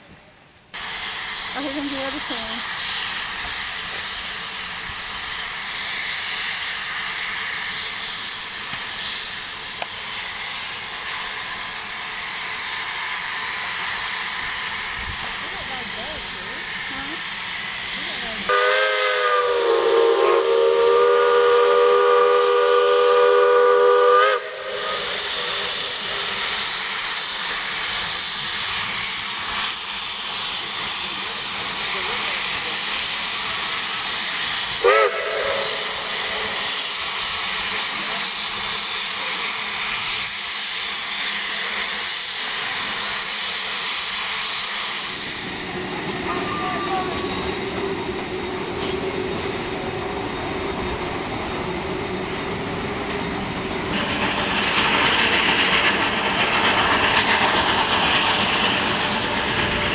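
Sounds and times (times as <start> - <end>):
steam hissing: 0.7 - 59.9
steam locomotive whistle chord: 18.5 - 25.8, 34.8 - 36.5.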